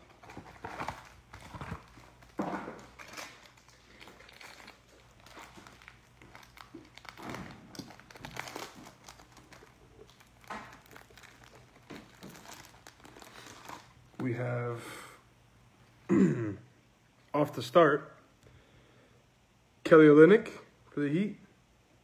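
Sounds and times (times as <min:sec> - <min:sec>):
plastic wrapper crinkling: 0:00.0 - 0:14.2.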